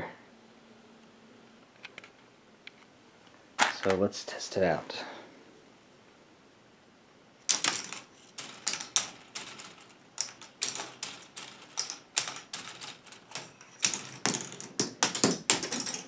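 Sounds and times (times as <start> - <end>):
plastic balls clattering down track: 7.5 - 16.0.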